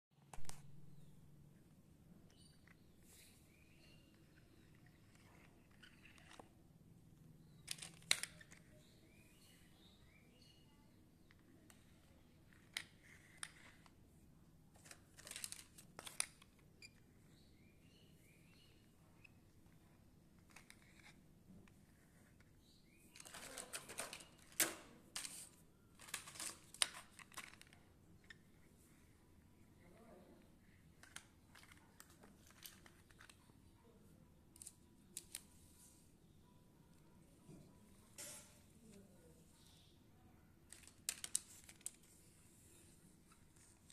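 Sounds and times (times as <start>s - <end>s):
plastic toy cars clicking: 2.3s - 6.6s, 7.5s - 9.6s, 11.2s - 14.0s, 14.7s - 17.0s, 19.6s - 28.6s, 30.6s - 33.6s, 34.5s - 35.6s, 40.6s - 42.3s.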